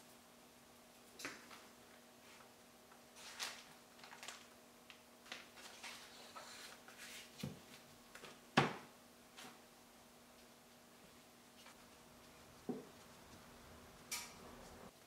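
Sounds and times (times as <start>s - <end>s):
plastic bag rustling: 3.1s - 7.3s.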